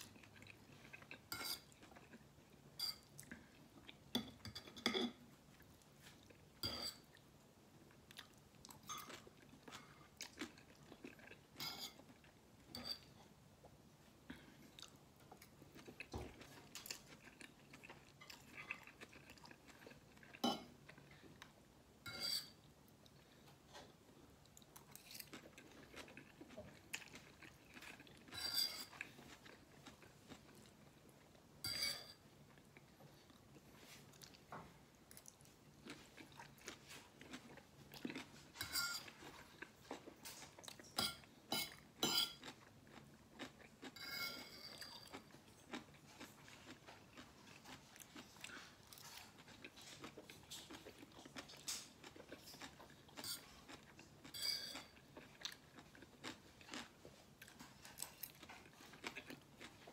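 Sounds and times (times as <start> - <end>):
man chewing and slurping noodles: 14.6 - 21.6, 23.0 - 31.4, 35.1 - 59.9.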